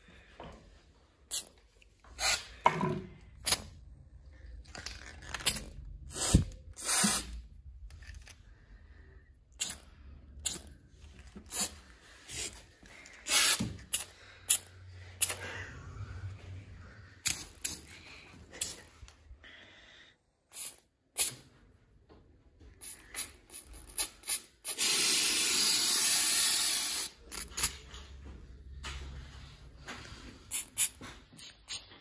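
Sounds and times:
aerosol spray can hissing: 0:06.1 - 0:07.4, 0:20.5 - 0:21.4, 0:22.8 - 0:27.2.

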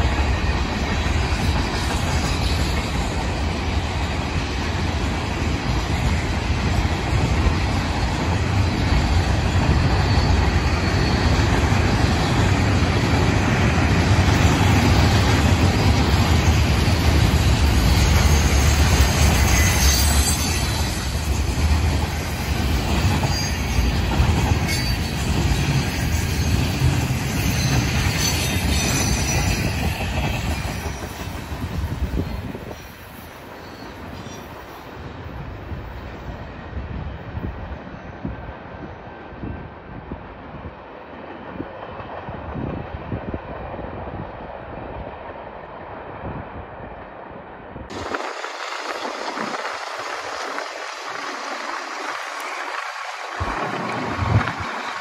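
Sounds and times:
train wheels rumbling on rails: 0:00.0 - 0:55.0
wheel squeal: 0:17.9 - 0:21.5, 0:22.6 - 0:31.4.

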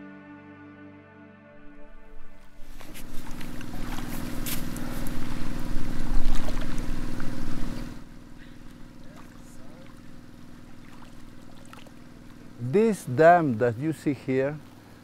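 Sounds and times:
small engine running: 0:02.6 - 0:13.4.

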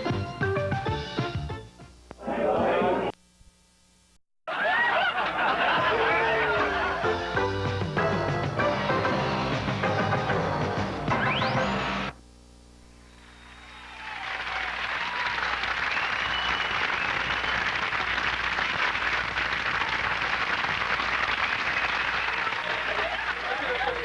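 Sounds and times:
audience applause: 0:13.4 - 0:24.0.

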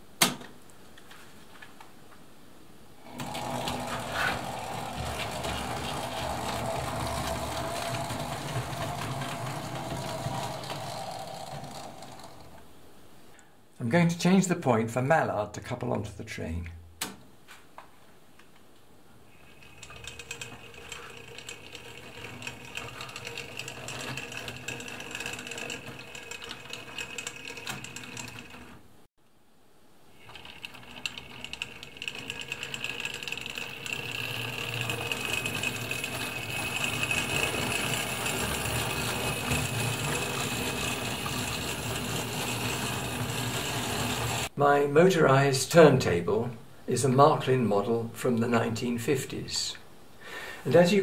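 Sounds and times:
model train motor whirring: 0:03.1 - 0:12.6, 0:19.4 - 0:28.8, 0:30.2 - 0:44.5
rapid clicking of wheels on track: 0:03.2 - 0:12.6, 0:19.8 - 0:28.6, 0:30.7 - 0:44.5.

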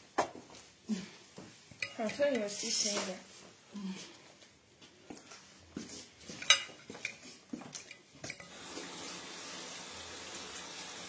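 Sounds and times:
dishes and cutlery clinking: 0:01.7 - 0:03.2, 0:06.2 - 0:08.6.

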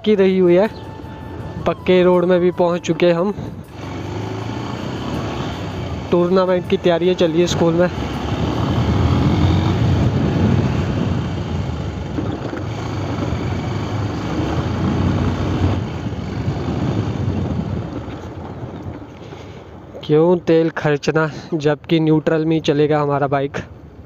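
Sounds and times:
wind noise on microphone: 0:00.0 - 0:20.0
road noise: 0:00.0 - 0:24.0
motorcycle engine running: 0:03.4 - 0:19.0.

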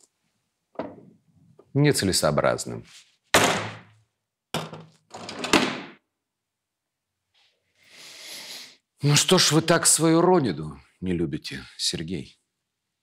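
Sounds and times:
knocks and handling sounds: 0:00.7 - 0:01.7, 0:04.6 - 0:06.0.

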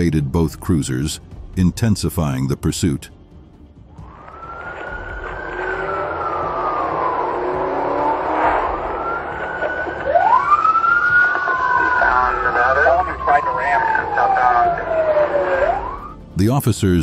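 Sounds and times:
car engine and road noise: 0:03.2 - 0:17.0
police siren wailing: 0:04.0 - 0:16.2.

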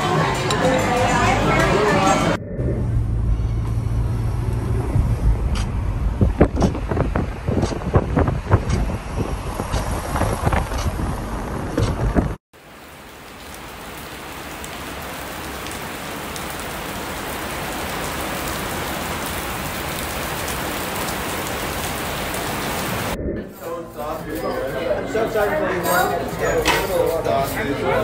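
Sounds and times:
car driving: 0:00.0 - 0:12.4
wind buffeting microphone: 0:04.6 - 0:12.4
rain falling: 0:12.6 - 0:23.2.

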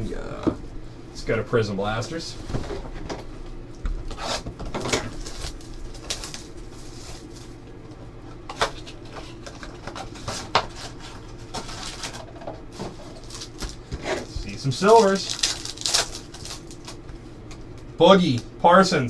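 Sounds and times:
cardboard and wrapper tearing: 0:04.2 - 0:07.3, 0:13.0 - 0:17.0.

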